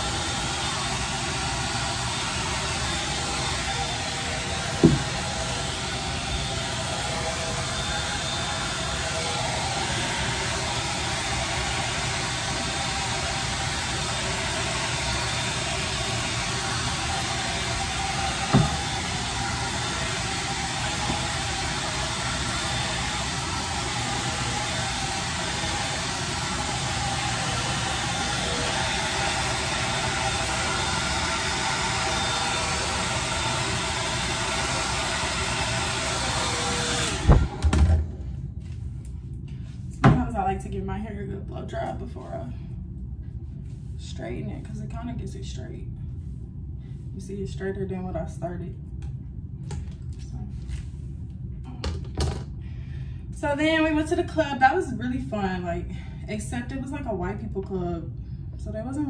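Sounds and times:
hair dryer running: 0:00.0 - 0:38.8.

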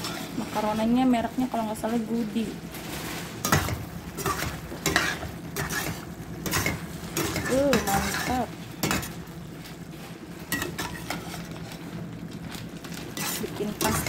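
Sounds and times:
spoon scraping and knocking pan: 0:03.4 - 0:09.3, 0:10.5 - 0:11.6, 0:13.1 - 0:14.0.

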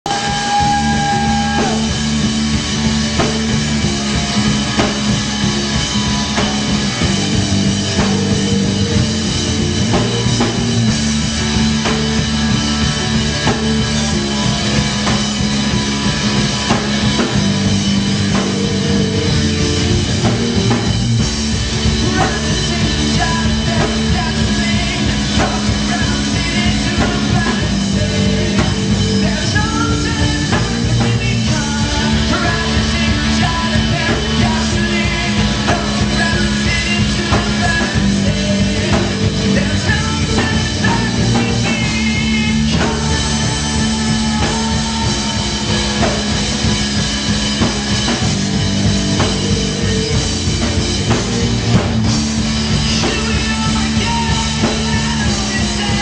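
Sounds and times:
man singing into microphone: 0:00.0 - 0:02.0, 0:21.9 - 0:46.5, 0:52.8 - 0:56.0
bass guitar: 0:00.0 - 0:56.0
drums: 0:00.0 - 0:56.0
electric guitar: 0:00.0 - 0:56.0
keyboard: 0:00.0 - 0:56.0.

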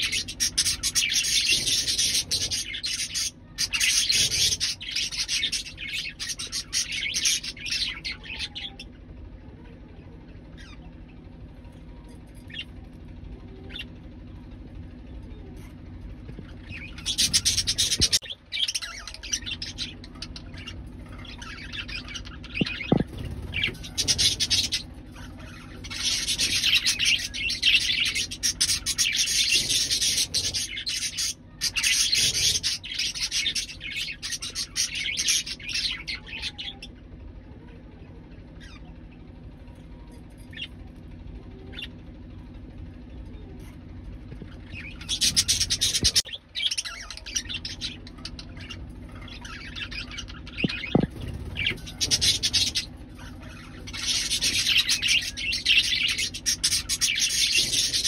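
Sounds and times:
budgerigars warbling and chattering: 0:00.0 - 0:58.0.

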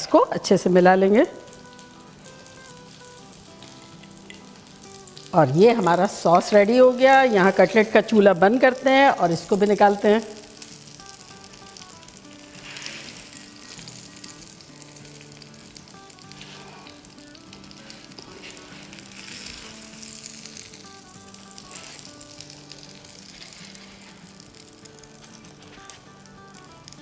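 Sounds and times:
fish sizzling in frying pan: 0:01.0 - 0:27.0.

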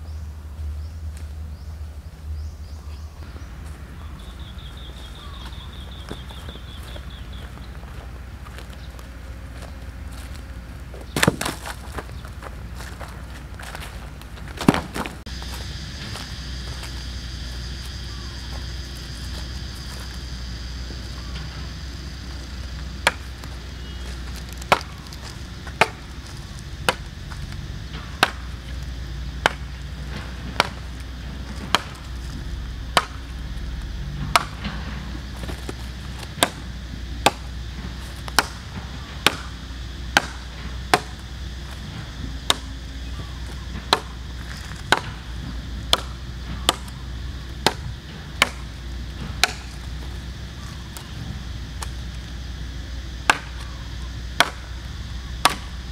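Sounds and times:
machete chopping wooden pole: 0:11.2 - 0:11.8, 0:14.6 - 0:15.1, 0:23.0 - 0:26.2, 0:26.8 - 0:27.1, 0:28.2 - 0:28.5, 0:29.4 - 0:30.9, 0:31.5 - 0:32.1, 0:32.9 - 0:33.2, 0:34.2 - 0:34.8, 0:35.4 - 0:37.5, 0:38.2 - 0:41.2, 0:42.4 - 0:42.7, 0:43.8 - 0:45.2, 0:45.9 - 0:47.0, 0:47.6 - 0:48.6, 0:49.3 - 0:49.8, 0:53.2 - 0:53.7, 0:54.4 - 0:54.7, 0:55.4 - 0:55.7.

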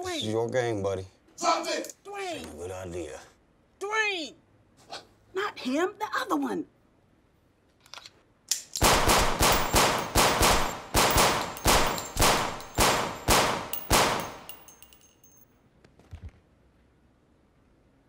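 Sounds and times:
echoing handgun shots: 0:08.8 - 0:14.7.

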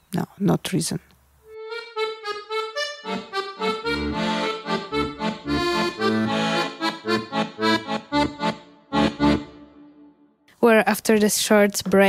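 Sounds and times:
repeated melody notes: 0:01.5 - 0:10.3
bass line: 0:03.0 - 0:09.6.

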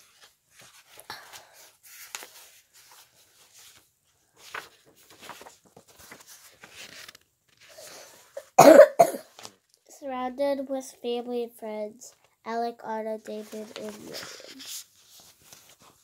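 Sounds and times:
book pages rustling and turning: 0:00.0 - 0:08.4, 0:09.3 - 0:09.7, 0:13.2 - 0:16.0.

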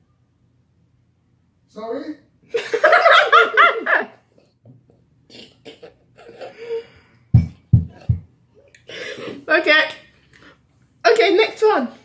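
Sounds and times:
dull low thumps: 0:07.3 - 0:08.3.

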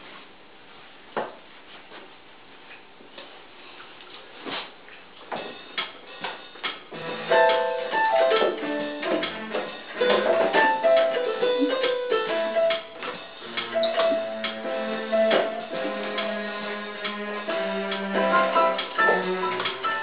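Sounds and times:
electronic keyboard piano: 0:06.1 - 0:20.0
knocks and clicks: 0:07.4 - 0:17.3, 0:17.9 - 0:20.0.

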